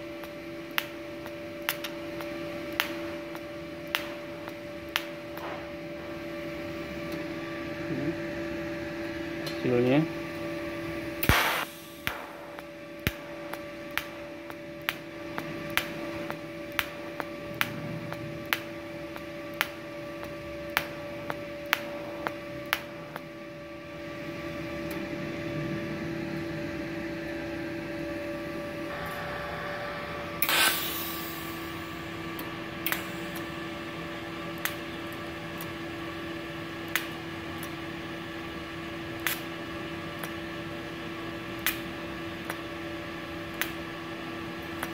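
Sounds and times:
sharp welding ticks: 0:00.0 - 0:05.5, 0:11.2 - 0:23.3, 0:30.4 - 0:37.8, 0:39.0 - 0:40.6, 0:41.6 - 0:42.7, 0:43.3 - 0:43.9, 0:44.6 - 0:44.9
welder electrical hum: 0:00.0 - 0:44.9.

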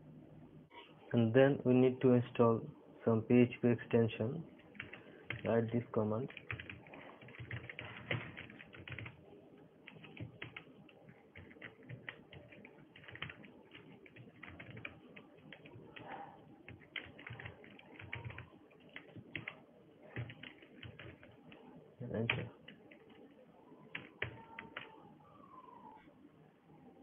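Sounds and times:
keyboard typing: 0:04.6 - 0:05.6, 0:06.2 - 0:09.2, 0:09.8 - 0:25.0.

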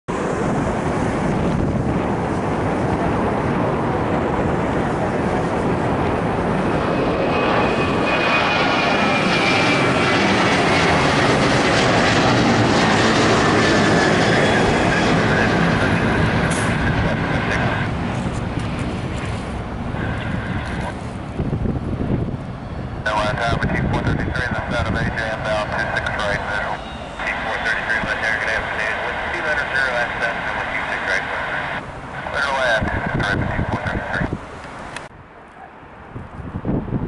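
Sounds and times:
jet engines roaring overhead: 0:00.1 - 0:37.0
faint falling whine: 0:25.4 - 0:32.4.

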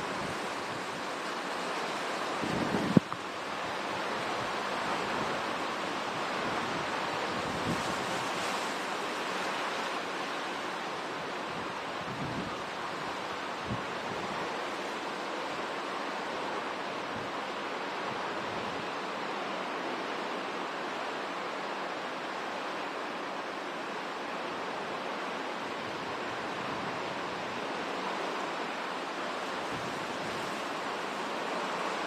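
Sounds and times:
heavy rain: 0:00.0 - 0:32.0
strong wind: 0:01.9 - 0:08.5, 0:10.6 - 0:14.7.

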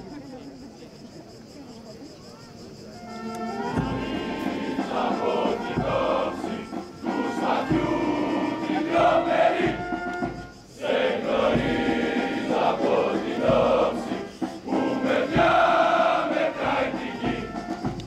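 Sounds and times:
large group singing in unison: 0:03.7 - 0:18.0.

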